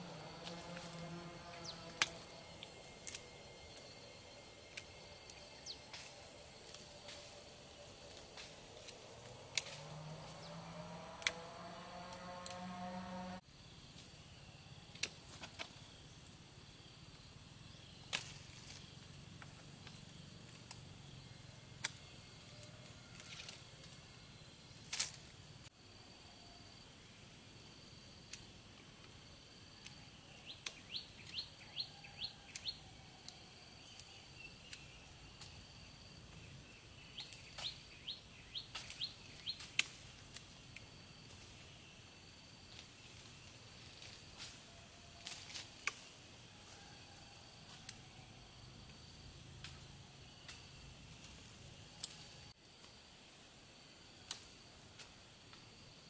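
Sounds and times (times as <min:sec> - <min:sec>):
bird chirping: 0:00.9 - 0:08.0, 0:30.2 - 0:32.8, 0:33.8 - 0:39.8.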